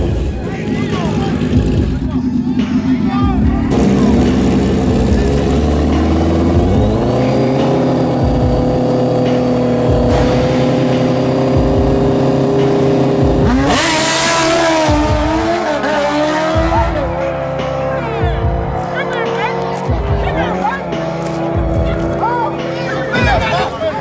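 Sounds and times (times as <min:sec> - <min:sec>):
motorcycle engines revving: 0:00.0 - 0:24.0.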